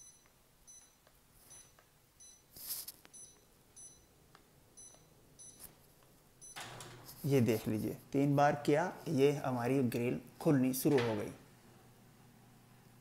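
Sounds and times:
air conditioner short high beeps: 0:00.0 - 0:02.5, 0:03.1 - 0:04.2, 0:04.8 - 0:05.8, 0:06.4 - 0:06.8.

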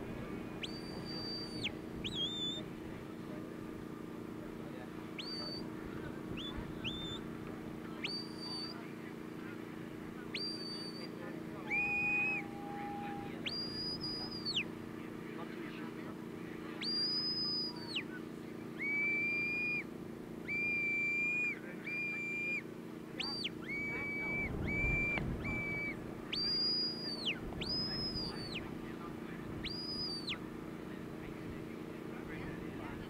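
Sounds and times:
whistle commands: 0:00.4 - 0:02.7, 0:05.2 - 0:05.7, 0:06.3 - 0:07.3, 0:08.0 - 0:08.9, 0:10.3 - 0:14.8, 0:16.8 - 0:18.2, 0:18.8 - 0:28.7, 0:29.6 - 0:30.4.

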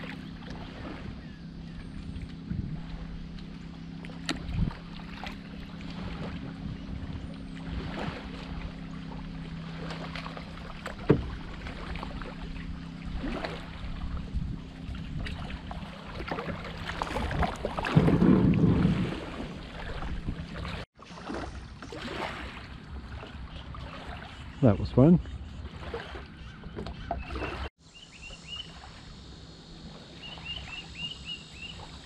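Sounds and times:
kayak paddle splashing in water: 0:00.0 - 0:24.8, 0:25.4 - 0:27.8
steady low hum: 0:00.0 - 0:26.7
kayak hull scraping on concrete: 0:16.3 - 0:23.4.

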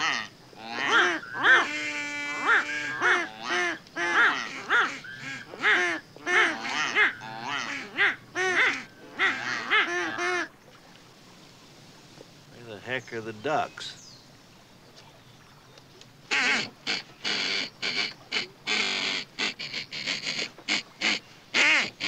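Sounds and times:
duck call quacks: 0:00.0 - 0:10.5, 0:16.3 - 0:22.0.

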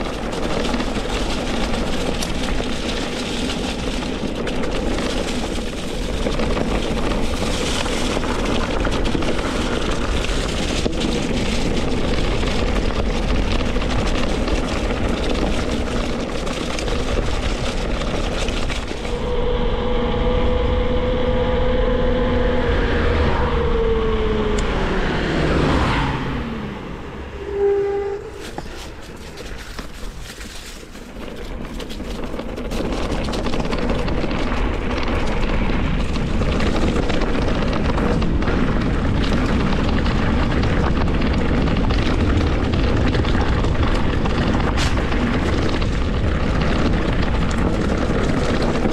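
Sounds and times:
bike tyres rattling over trail: 0:00.0 - 0:48.9
wind on microphone: 0:00.0 - 0:48.9
pitched hum sliding down: 0:19.0 - 0:29.3
short squeal: 0:27.4 - 0:29.0.

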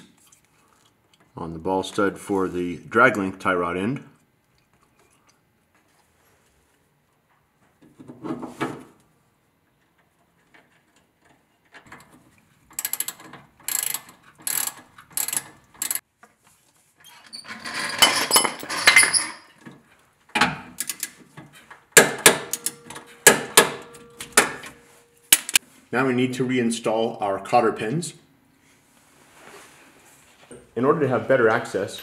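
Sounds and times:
socket ratchet clicking: 0:12.8 - 0:16.0.

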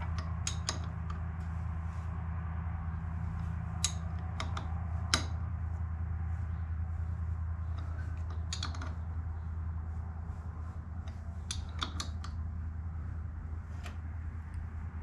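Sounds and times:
metallic wrench clicks: 0:00.0 - 0:01.2, 0:03.8 - 0:05.4, 0:07.8 - 0:09.0, 0:11.5 - 0:12.4
steady low hum: 0:00.0 - 0:15.0.

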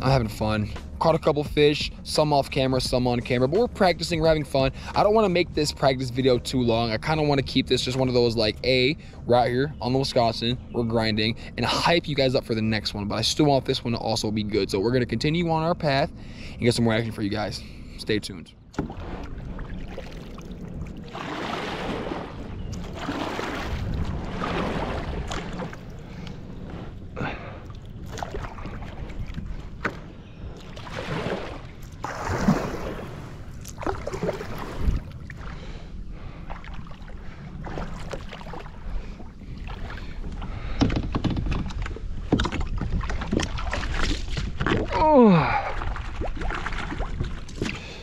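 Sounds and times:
kayak paddle splashing: 0:18.7 - 0:41.0, 0:41.6 - 0:48.0.

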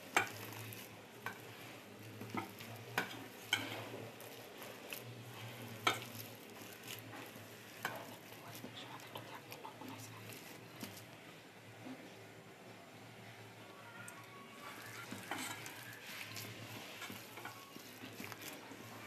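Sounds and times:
hand kneading wet mixture: 0:00.0 - 0:12.6, 0:14.0 - 0:19.0.

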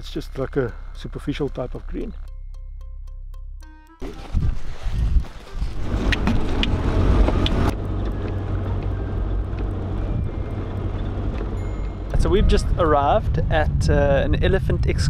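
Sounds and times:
vehicle driving on dirt road: 0:04.1 - 0:15.0.

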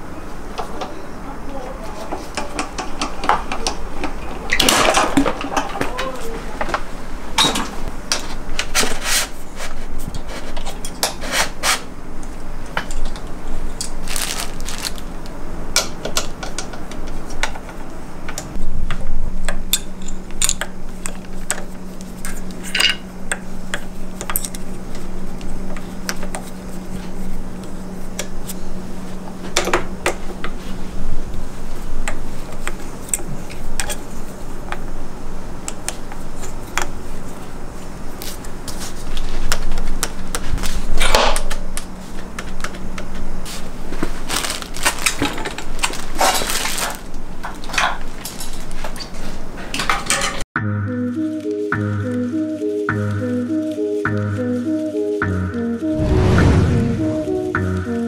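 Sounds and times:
steady low hum: 0:52.9 - 0:58.0.

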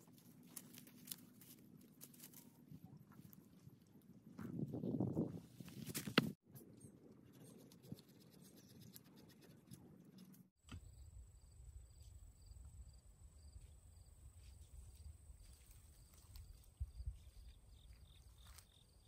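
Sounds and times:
low wind rumble on microphone: 0:02.8 - 0:06.4.

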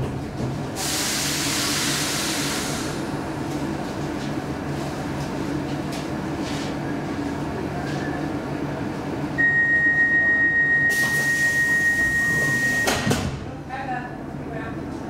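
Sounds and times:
train rumbling to a stop: 0:00.0 - 0:13.4
high-pitched door signal tone: 0:09.4 - 0:13.1.

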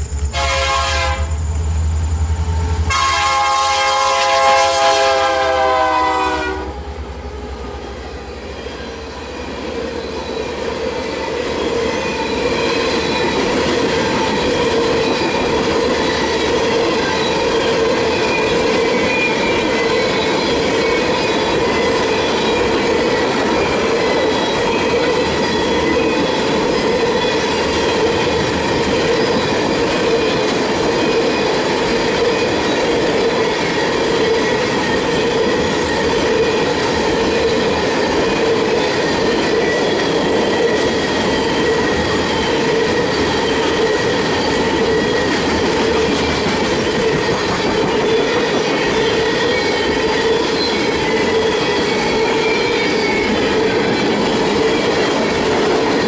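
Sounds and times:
locomotive horn blasts: 0:00.3 - 0:01.4, 0:02.5 - 0:06.9
wheel squeal: 0:47.0 - 0:53.5.

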